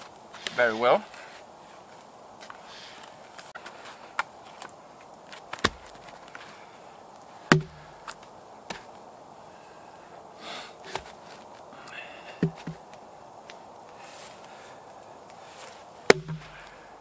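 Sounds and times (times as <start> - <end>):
axe chopping into log: 5.6 - 6.0, 7.5 - 8.0, 12.4 - 12.8, 16.1 - 16.8
blade tapping on wood: 7.5 - 7.9, 16.1 - 16.7.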